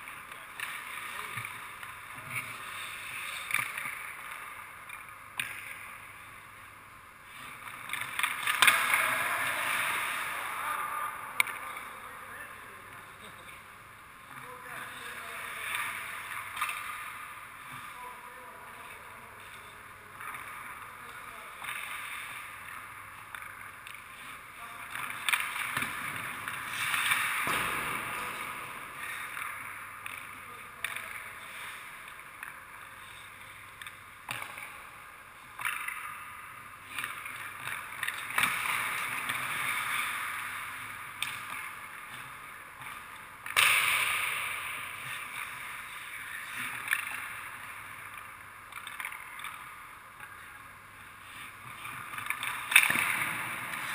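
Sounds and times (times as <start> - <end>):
skates scraping on ice: 0.0 - 4.6, 7.3 - 10.6, 20.4 - 34.7, 35.4 - 53.9
pucks striking goalie pads: 0.0 - 6.0, 7.5 - 10.6, 14.8 - 17.3, 21.6 - 32.8, 33.6 - 34.9, 35.5 - 50.4, 51.4 - 53.9
sticks shooting pucks: 0.0 - 6.1, 7.4 - 12.6, 14.5 - 18.2, 18.8 - 53.9.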